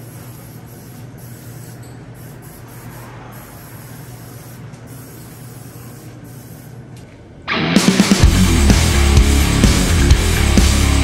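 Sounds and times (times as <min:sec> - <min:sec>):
spray gun hissing: 0:00.0 - 0:06.8.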